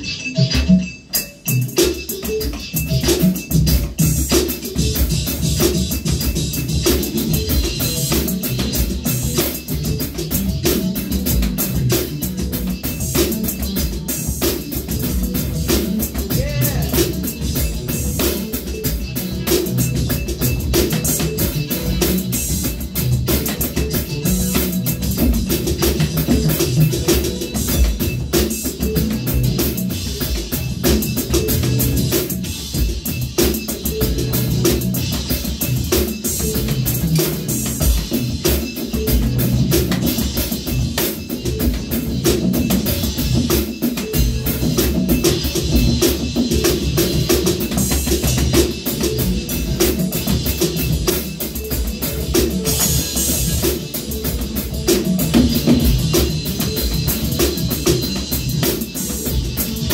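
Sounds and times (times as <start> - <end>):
bass drum: 2.7 - 59.9
snare drum: 10.6 - 28.9.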